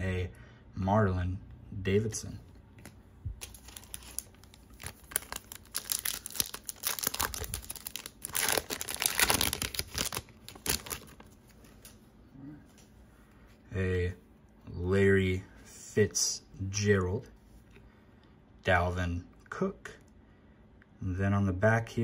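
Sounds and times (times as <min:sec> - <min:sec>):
foil wrapper tearing and crinkling: 0:03.4 - 0:11.4.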